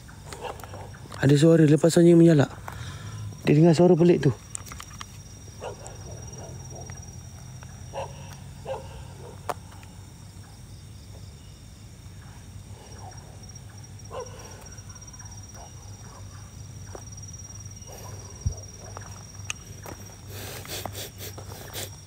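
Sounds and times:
distant dogs barking: 0.0 - 1.4, 5.5 - 10.7, 12.1 - 21.9
insect trill: 0.0 - 22.0.

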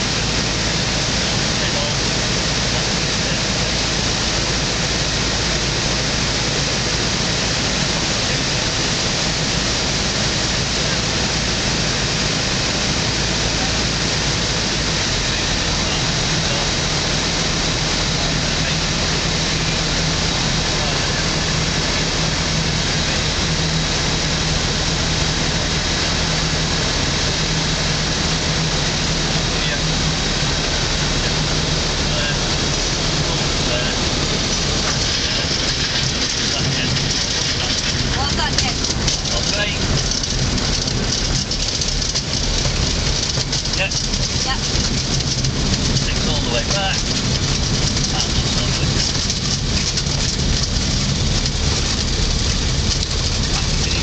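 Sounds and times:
aircraft engine noise: 0.0 - 54.0
rushing airflow: 0.0 - 54.0.

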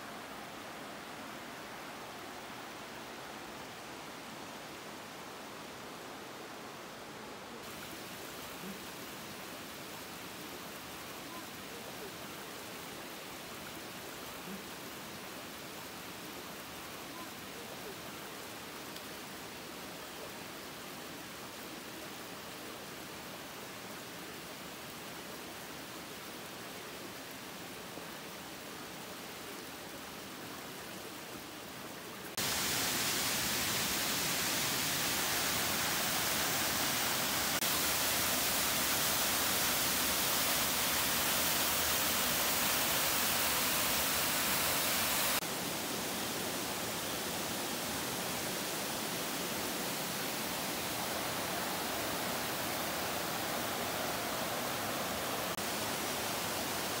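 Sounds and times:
waterfall rushing: 32.2 - 57.0.

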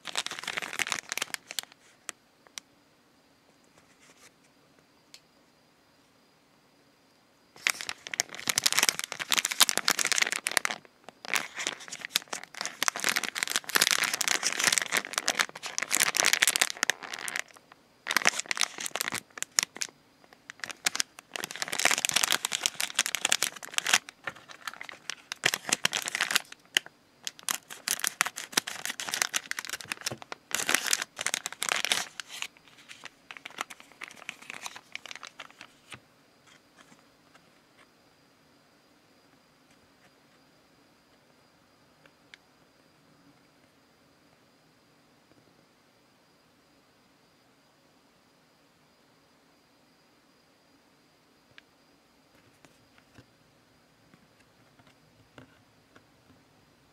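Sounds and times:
plastic wrapper crinkling: 0.0 - 2.6, 7.6 - 37.0.

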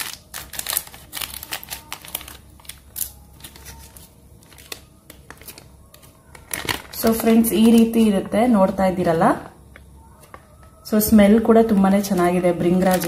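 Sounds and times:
plastic packet crinkling: 0.0 - 7.9, 12.0 - 13.0.

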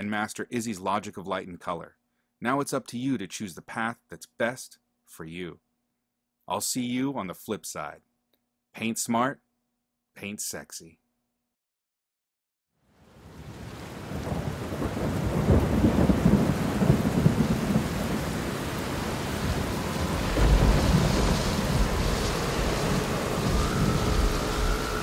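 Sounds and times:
rain: 12.9 - 25.0
rolling thunder: 13.4 - 25.0
faint steady tone rising in pitch: 21.9 - 25.0.

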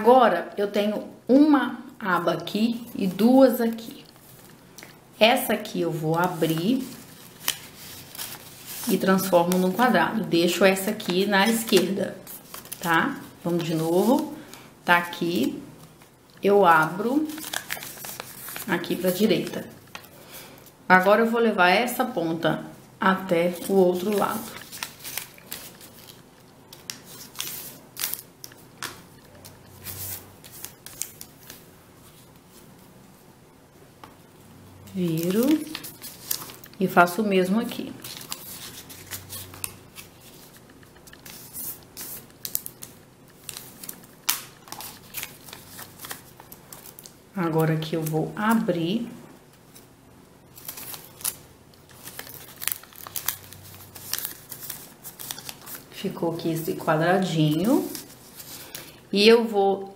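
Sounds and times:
paper being folded and creased: 6.0 - 10.0, 10.7 - 14.5, 17.2 - 20.2, 23.6 - 32.6, 35.1 - 36.8, 37.7 - 47.2, 50.5 - 56.0.

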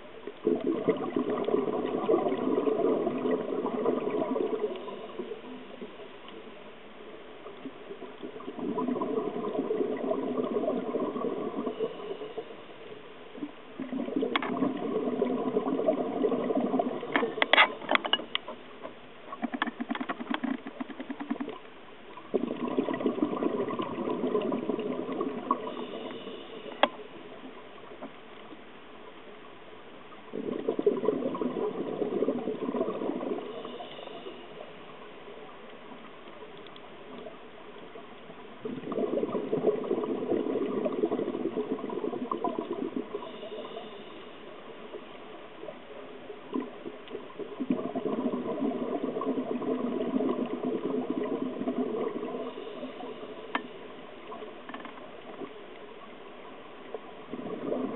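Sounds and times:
diver exhaling burbling bubbles: 0.4 - 5.6, 8.1 - 12.2, 13.8 - 17.6, 22.3 - 26.4, 30.3 - 34.4, 38.6 - 44.0, 46.5 - 53.2, 57.2 - 57.9.

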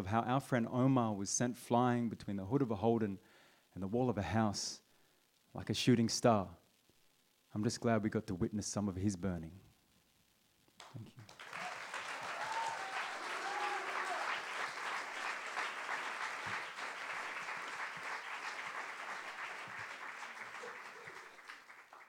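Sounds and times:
audience applause: 11.2 - 22.0.

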